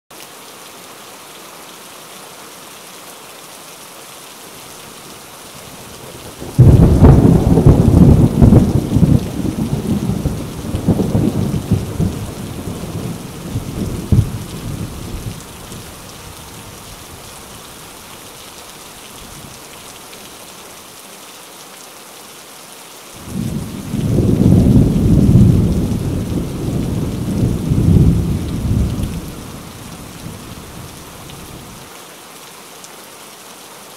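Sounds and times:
steady rain falling: 0:00.1 - 0:33.9
rolls of thunder: 0:06.5 - 0:15.3, 0:23.2 - 0:30.5.

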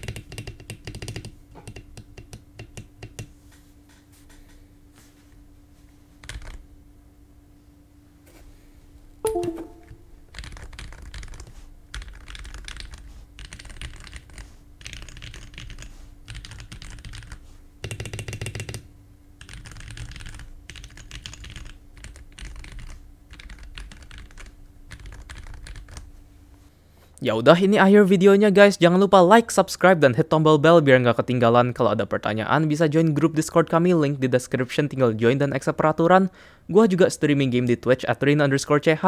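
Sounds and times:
mechanical keyboard typing: 0:00.0 - 0:03.3, 0:06.2 - 0:06.6, 0:10.4 - 0:18.8, 0:19.4 - 0:26.1
faint steady hum: 0:00.0 - 0:39.0.

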